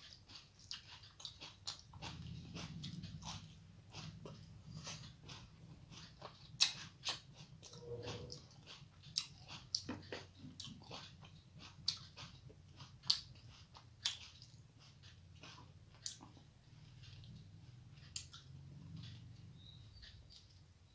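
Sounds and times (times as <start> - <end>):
person chewing food: 0.0 - 20.9
wet mouth clicks: 0.4 - 16.4.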